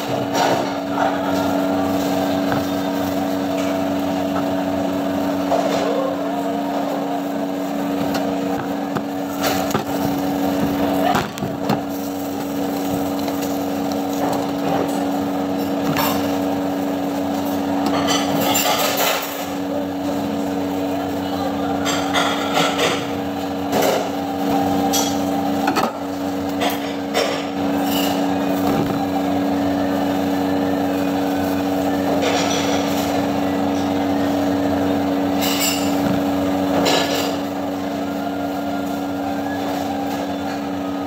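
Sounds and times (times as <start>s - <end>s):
low machine hum: 0.0s - 41.0s
plastic film crinkling: 6.8s - 15.2s.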